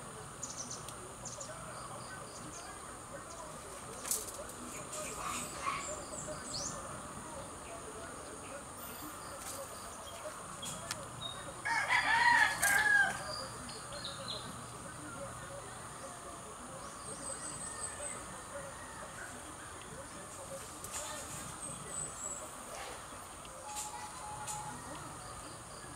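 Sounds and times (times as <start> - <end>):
rooster crowing: 11.6 - 13.3, 17.8 - 19.5.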